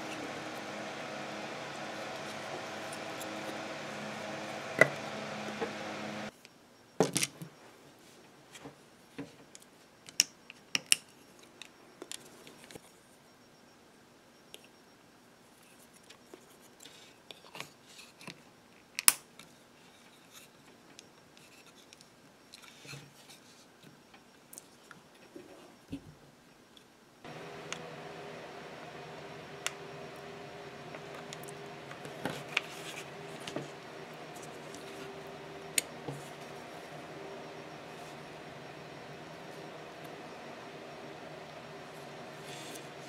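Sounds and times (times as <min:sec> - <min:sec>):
steady hum: 0:00.0 - 0:06.3, 0:27.3 - 0:43.0.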